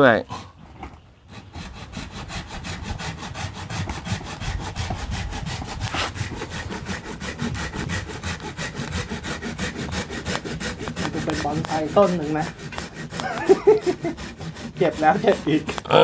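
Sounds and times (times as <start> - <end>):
hand saw cutting a stem: 1.3 - 16.0.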